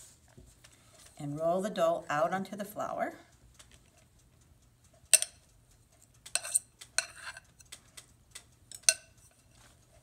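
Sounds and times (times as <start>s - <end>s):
fork scraping a mixing bowl: 6.3s - 7.7s.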